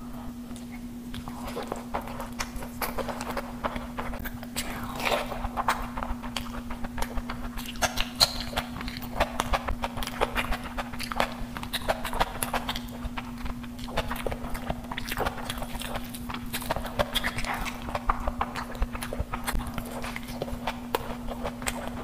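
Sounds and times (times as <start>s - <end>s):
steady low hum: 0.0s - 22.0s
wet chewing and lip smacking: 0.5s - 22.0s.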